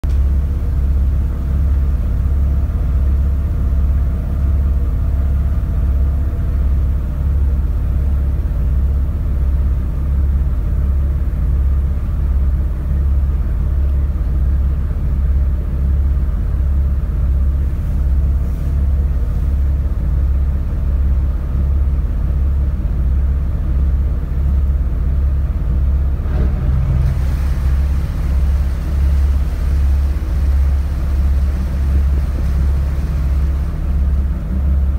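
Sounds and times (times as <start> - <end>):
ferry engine throbbing: 26.1 - 34.9
hiss: 26.8 - 34.3.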